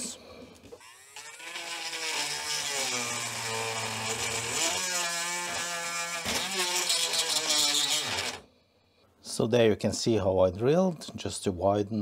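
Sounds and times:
rotary tool drilling plastic: 0.8s - 8.4s.

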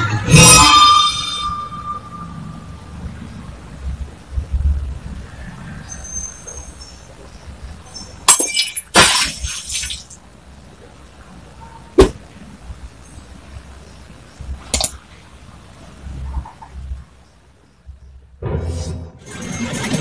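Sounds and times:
glass-like shattering crash: 7.9s - 10.2s.

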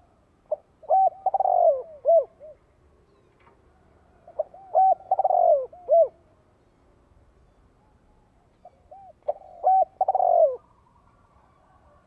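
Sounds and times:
dove cooing: 0.0s - 2.7s, 3.7s - 6.3s, 8.1s - 12.0s.

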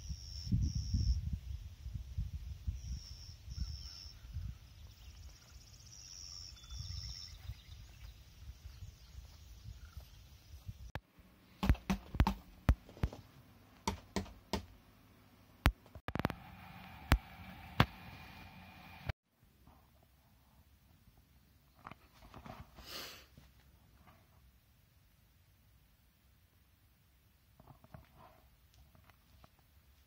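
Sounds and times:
wind buffeting microphone: 0.5s - 5.0s
bird chirping: 2.7s - 10.9s.

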